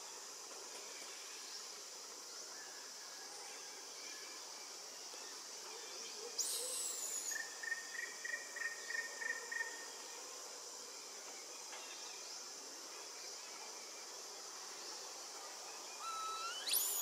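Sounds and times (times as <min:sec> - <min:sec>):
insects droning: 0:00.0 - 0:17.0
bird calling: 0:16.0 - 0:17.0.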